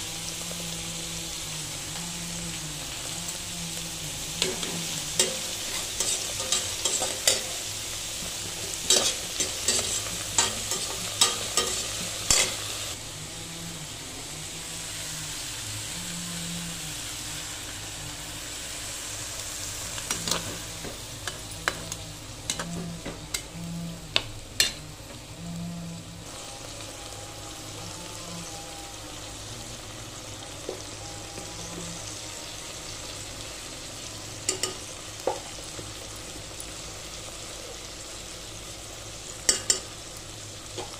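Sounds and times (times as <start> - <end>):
vegetables sizzling in oil: 0.0 - 40.9
spatula scraping a pan: 3.9 - 12.9.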